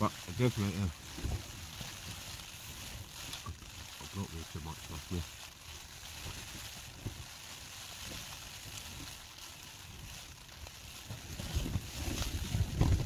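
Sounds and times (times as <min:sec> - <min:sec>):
rain on tent fabric: 0:00.0 - 0:13.0
wind buffeting: 0:11.1 - 0:13.0.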